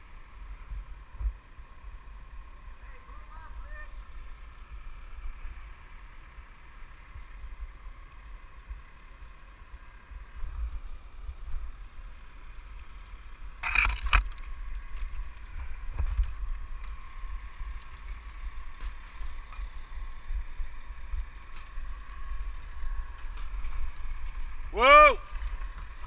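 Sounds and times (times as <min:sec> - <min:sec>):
faint machine hum: 0:00.0 - 0:26.0
crackling and rattling: 0:12.6 - 0:24.7.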